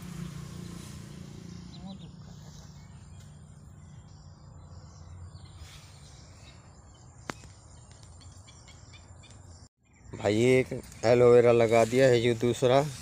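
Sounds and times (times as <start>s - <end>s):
low steady rumble: 0.0s - 5.4s.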